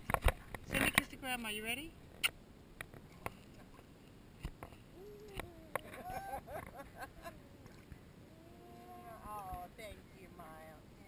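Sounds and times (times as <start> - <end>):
water lapping against camera: 0.0 - 10.0
soft voice cooing: 4.9 - 6.6, 7.2 - 9.4.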